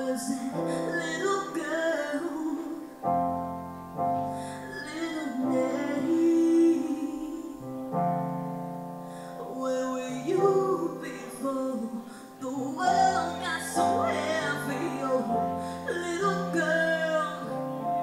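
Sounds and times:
woman singing into a microphone: 0.0s - 3.2s, 4.3s - 8.0s, 9.2s - 18.0s
keyboard chords: 0.0s - 18.0s.

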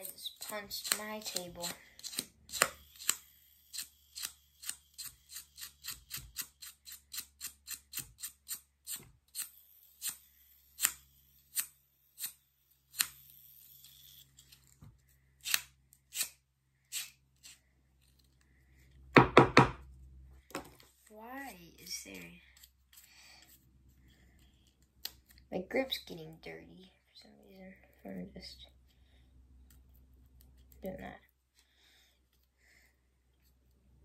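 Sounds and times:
louder knocks: 19.2s - 19.8s.

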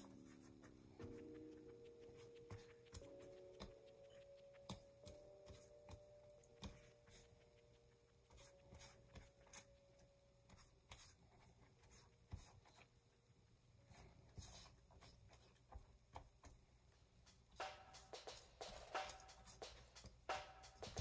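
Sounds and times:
pastry brush tapping and rubbing: 0.0s - 12.9s, 17.2s - 21.0s.

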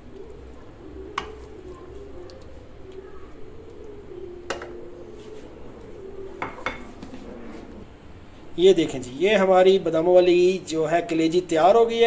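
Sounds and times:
wooden spoon knocking on dishes: 4.5s - 4.8s, 6.4s - 7.1s.

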